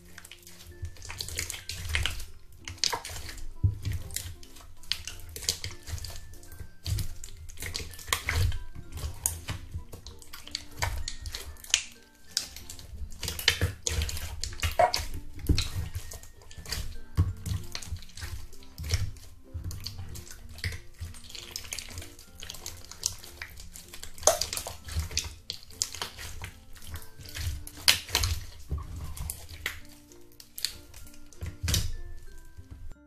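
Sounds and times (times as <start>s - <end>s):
wet slime squelches: 0.0s - 33.0s.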